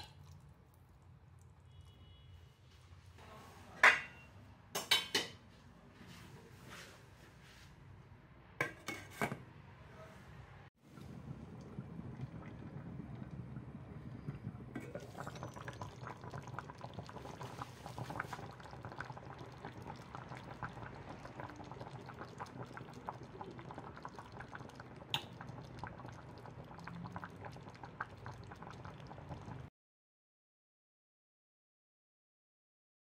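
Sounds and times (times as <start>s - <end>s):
cream sauce bubbling in a pan: 10.8s - 29.7s.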